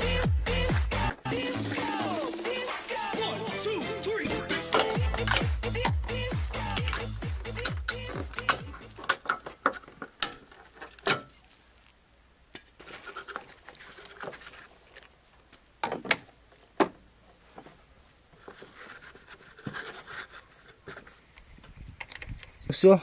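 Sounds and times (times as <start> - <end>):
soft rustling: 9.7 - 15.7.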